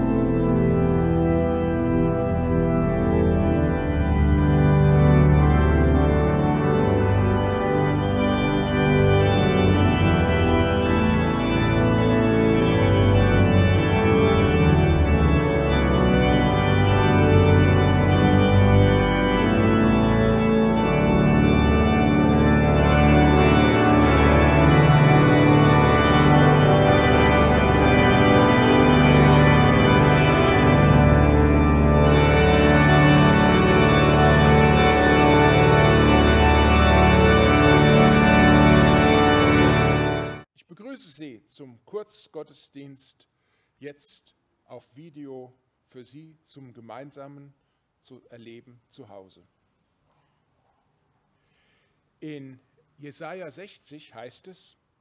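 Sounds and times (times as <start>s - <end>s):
pipe organ playing: 0.0s - 40.5s.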